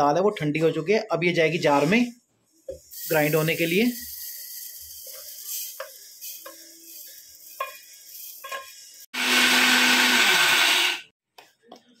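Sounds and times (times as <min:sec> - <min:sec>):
electric grinder motor running: 0:09.2 - 0:11.1.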